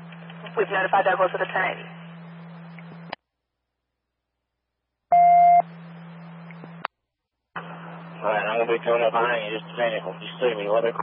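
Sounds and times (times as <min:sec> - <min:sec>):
radio hum and hiss: 0:00.0 - 0:03.2, 0:07.6 - 0:11.0
scanner radio beep: 0:05.1 - 0:05.7.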